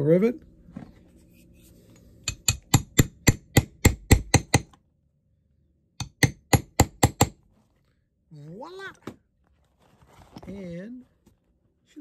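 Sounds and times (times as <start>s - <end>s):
hammer tapping metal punch: 2.2s - 4.8s, 6.0s - 7.4s.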